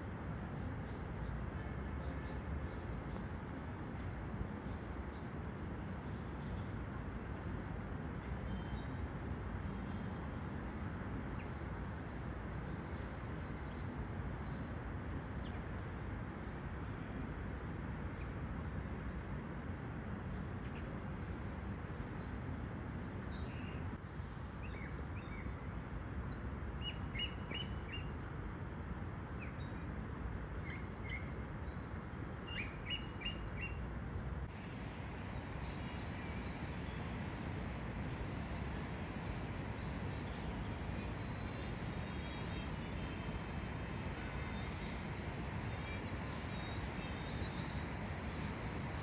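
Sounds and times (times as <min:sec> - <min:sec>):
small birds chirping: 0:38.2 - 0:43.5.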